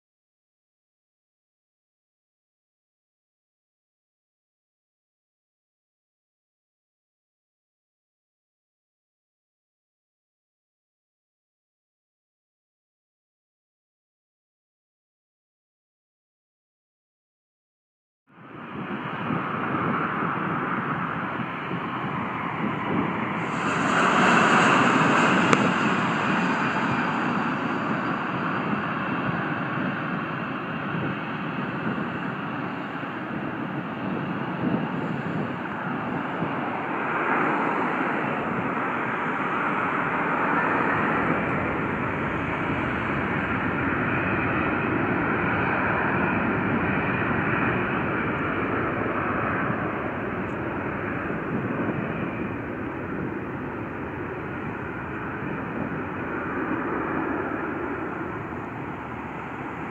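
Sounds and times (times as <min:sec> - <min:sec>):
airliner engines running: 0:18.3 - 0:59.9
high hiss: 0:23.3 - 0:29.6.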